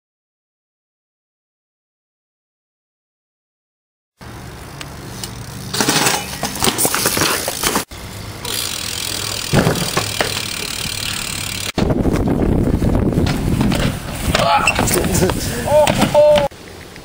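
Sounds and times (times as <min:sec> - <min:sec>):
bike rattling on concrete: 0:04.2 - 0:16.5
bike crashing into van: 0:09.5 - 0:10.5.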